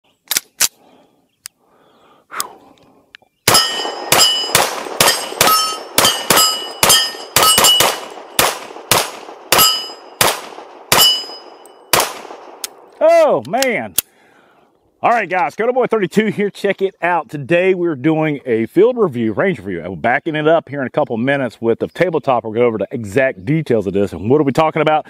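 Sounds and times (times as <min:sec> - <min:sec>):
sharp clicks: 0:00.2 - 0:00.8, 0:12.0 - 0:14.1
steel targets ringing: 0:03.5 - 0:08.5, 0:09.5 - 0:10.2, 0:10.9 - 0:12.0
pistol shots: 0:03.5 - 0:12.9.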